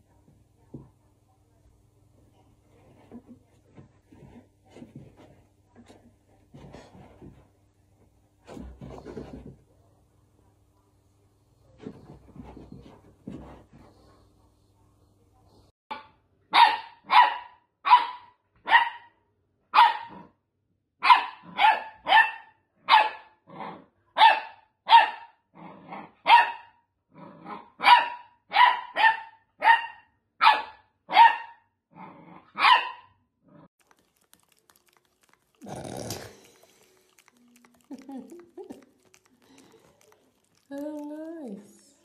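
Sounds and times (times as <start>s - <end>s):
puppy barking: 15.9s - 19.1s, 19.7s - 20.2s, 21.0s - 23.3s, 24.2s - 25.4s, 26.2s - 26.8s, 27.7s - 31.7s, 32.5s - 33.1s
dog low grumbles: 33.5s - 41.7s.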